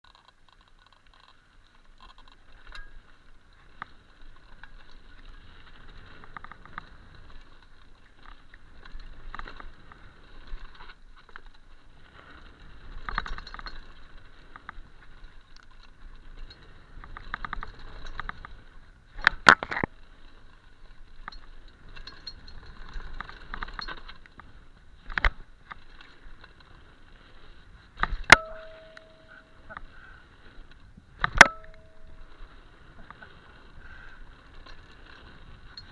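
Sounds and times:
bike tyres rattling on dirt: 0:00.0 - 0:35.9
brief ringing tone: 0:28.3 - 0:29.7, 0:31.4 - 0:32.4.

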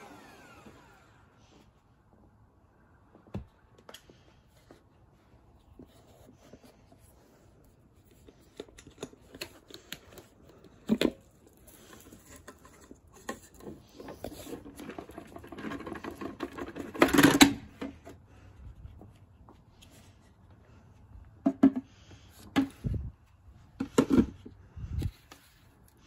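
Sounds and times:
plastic canister clicks and clatter: 0:14.4 - 0:18.0.

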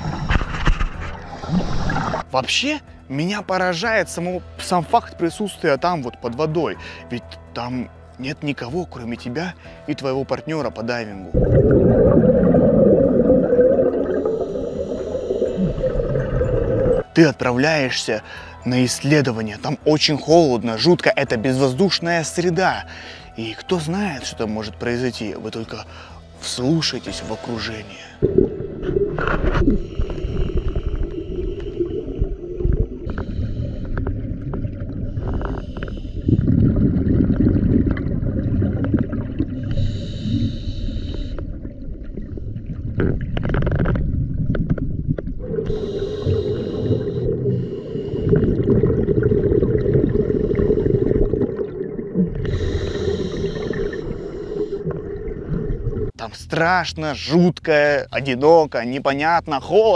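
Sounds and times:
bubbling underwater exhalation: 0:01.2 - 0:02.3, 0:11.3 - 0:17.1, 0:28.2 - 0:40.6, 0:41.3 - 0:56.2
regulator hissing inhalation: 0:12.3 - 0:16.2, 0:29.6 - 0:34.3, 0:34.9 - 0:36.7, 0:39.6 - 0:41.6, 0:45.6 - 0:48.8, 0:52.4 - 0:55.2.

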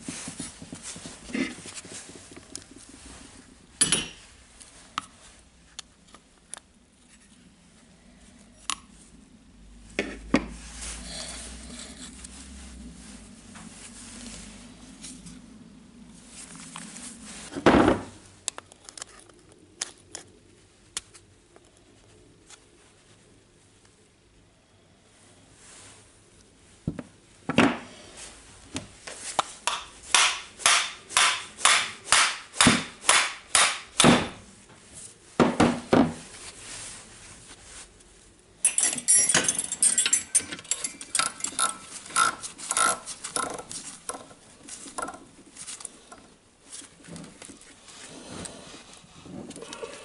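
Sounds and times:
sharp metal knocks: 0:29.7 - 0:34.4
metal parts scraping and clinking: 0:38.6 - 0:44.0.

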